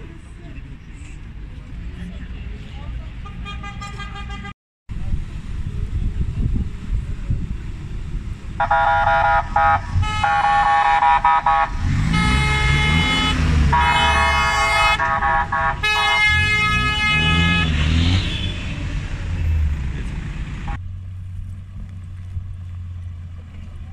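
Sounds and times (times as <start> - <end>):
vehicle engines driving slowly: 0.0 - 23.9
car horns honking: 3.2 - 4.6, 8.6 - 19.0.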